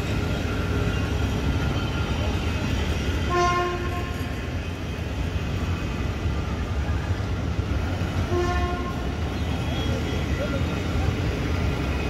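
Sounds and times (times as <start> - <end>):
train coaches rumbling past: 0.0 - 12.0
train horn blast: 3.2 - 4.4, 8.3 - 9.5.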